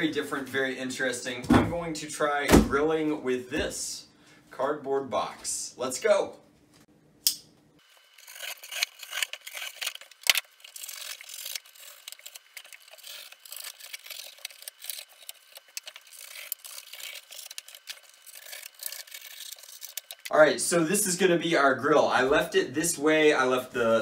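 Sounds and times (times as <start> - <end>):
knife sawing through cardboard: 10.7 - 20.1.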